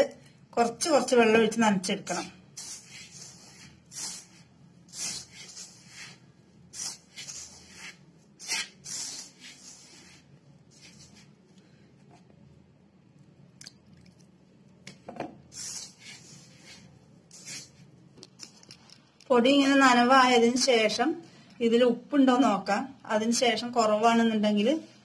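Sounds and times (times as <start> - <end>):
hand rubbing flour in steel bowl: 2.0 - 11.5, 15.4 - 18.0.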